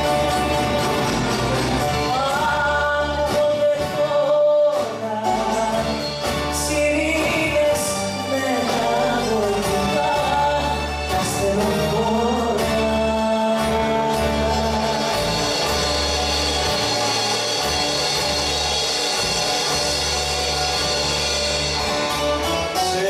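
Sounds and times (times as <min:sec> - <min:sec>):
ensemble playing popular song: 0:00.0 - 0:23.0.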